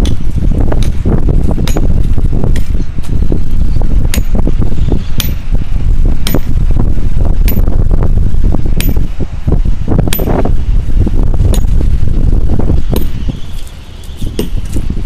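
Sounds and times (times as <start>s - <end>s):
wind rumble on microphone: 0.0s - 15.0s
hammer striking metal: 6.2s - 6.6s.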